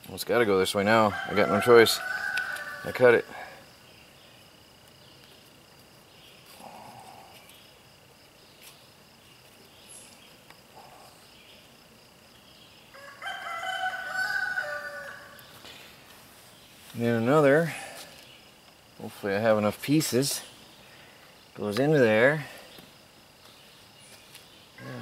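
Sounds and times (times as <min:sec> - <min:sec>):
rooster crowing: 0:01.0 - 0:03.6, 0:12.9 - 0:15.5, 0:24.8 - 0:25.0.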